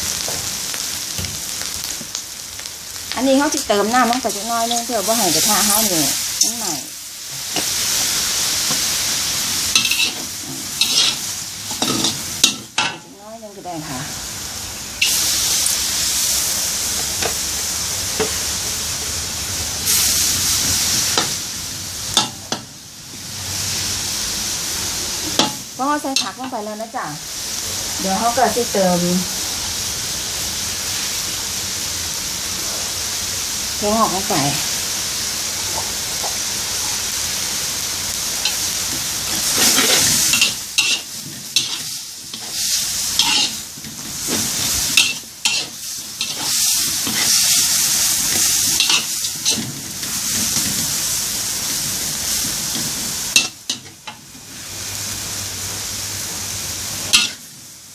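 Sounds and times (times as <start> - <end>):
meat sizzling in a wok: 0.0 - 57.9
metal spatula scraping a pan: 9.7 - 13.0, 39.3 - 51.0, 57.1 - 57.4.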